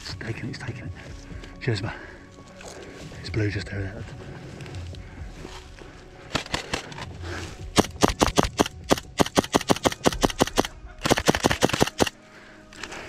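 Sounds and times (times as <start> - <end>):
airsoft pistol rapid shots: 7.8 - 12.1.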